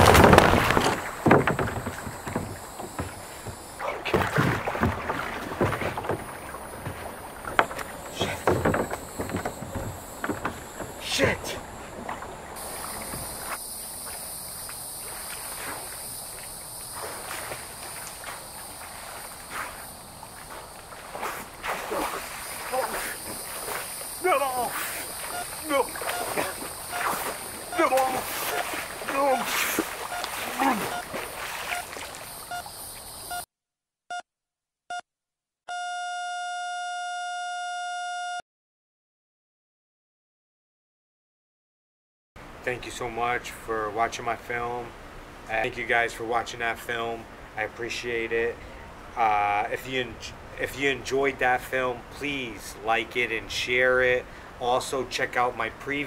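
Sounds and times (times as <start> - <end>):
insects chorus: 0.0 - 33.4
water lapping against kayak: 0.0 - 33.4
soft water clicks: 11.6 - 33.4
heart monitor beeping: 24.6 - 31.9, 32.5 - 32.7, 35.7 - 38.4
heart monitor flatline tone: 25.2 - 28.2, 30.1 - 31.9, 35.7 - 38.4.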